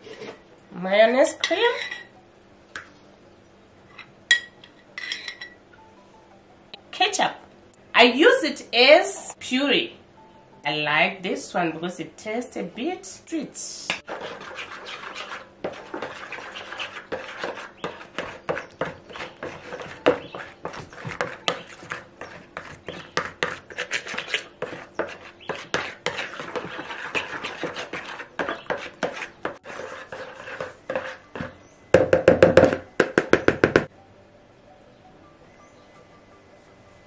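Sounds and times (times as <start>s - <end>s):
hand mixing wet marinade in bowl: 14.1s - 31.6s.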